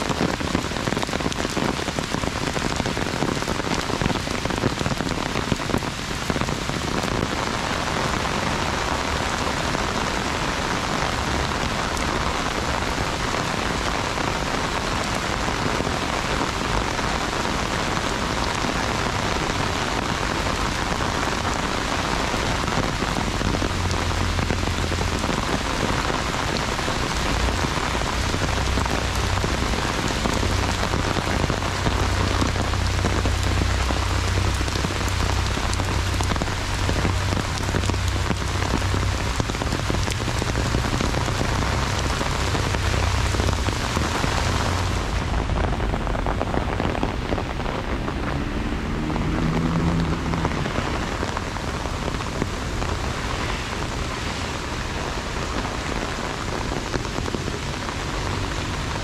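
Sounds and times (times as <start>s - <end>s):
heavy rain on an umbrella: 0.0s - 59.0s
low rumble: 27.3s - 55.3s.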